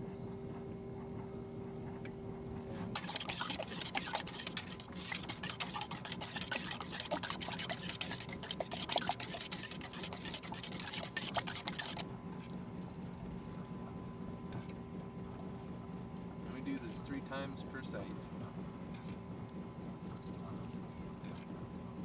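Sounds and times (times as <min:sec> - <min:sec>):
metal spoon scraping wet sediment: 0:03.0 - 0:12.5.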